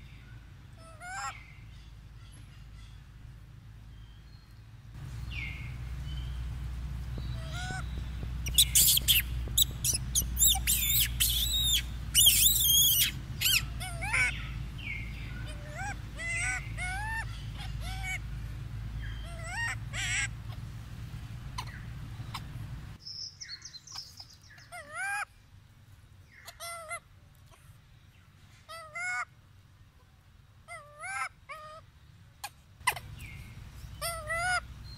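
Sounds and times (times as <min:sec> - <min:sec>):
macaques screeching: 0:08.5 - 0:14.4.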